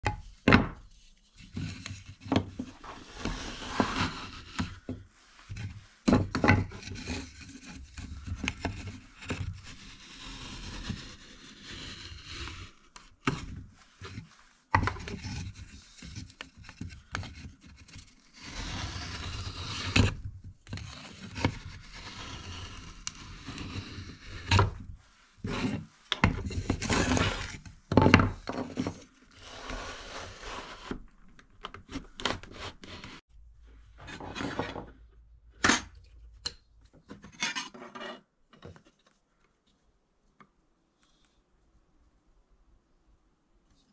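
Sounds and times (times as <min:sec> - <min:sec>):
wood scraping across bench: 0:01.6 - 0:12.6, 0:21.4 - 0:31.1.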